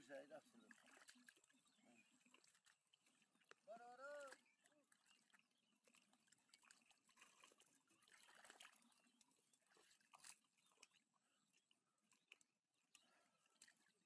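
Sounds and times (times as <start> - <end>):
hands squelching in mud: 4.3 - 11.0.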